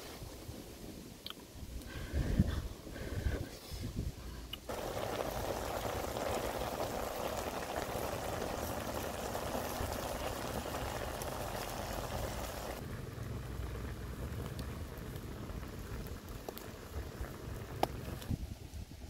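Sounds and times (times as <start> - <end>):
food boiling in a wok: 4.6 - 19.0.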